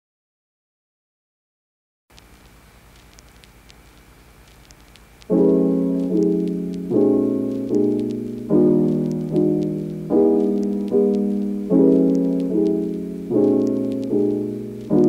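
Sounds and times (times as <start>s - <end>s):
piano chords: 5.3s - 15.0s.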